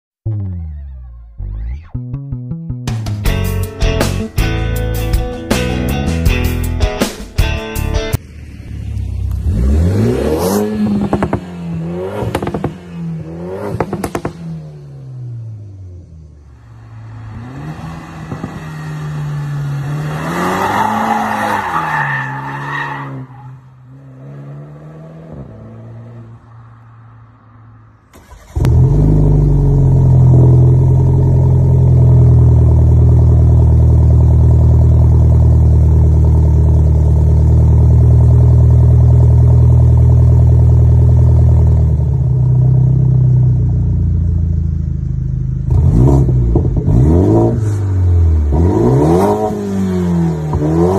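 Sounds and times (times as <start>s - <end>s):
car engine driving past: 8.2s - 21.9s
loud car exhaust running steadily: 28.7s - 50.9s.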